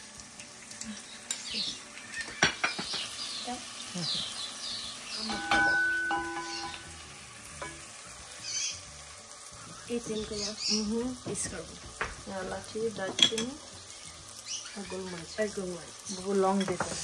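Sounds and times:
onions frying in oil: 0:00.0 - 0:17.0
sharp clink: 0:05.3 - 0:06.9
spoon tapping ceramic pot: 0:05.3 - 0:06.9.

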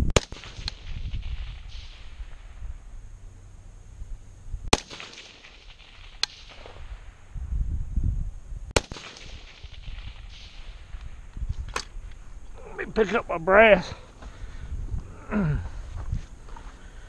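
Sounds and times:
rifle shots: 0:00.1 - 0:02.8, 0:04.7 - 0:07.4, 0:08.8 - 0:12.0.

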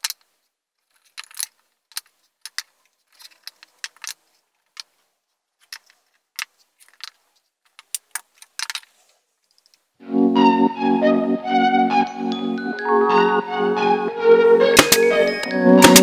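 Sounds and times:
wooden blocks clicking and tapping: 0:00.0 - 0:09.8, 0:14.8 - 0:15.1.

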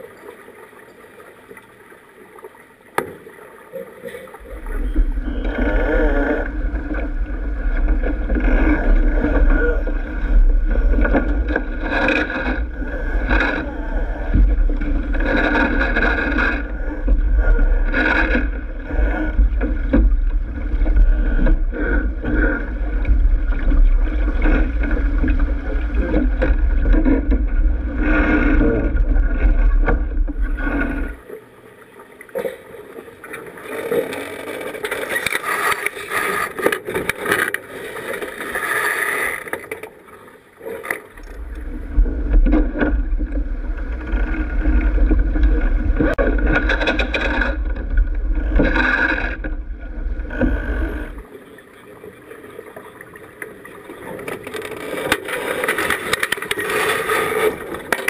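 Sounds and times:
water rushing along hull: 0:00.0 - 0:58.0.

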